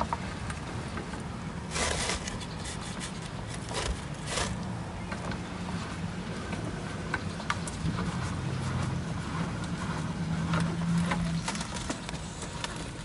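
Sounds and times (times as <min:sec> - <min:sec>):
stabilizer jack scraping: 0:01.7 - 0:04.8.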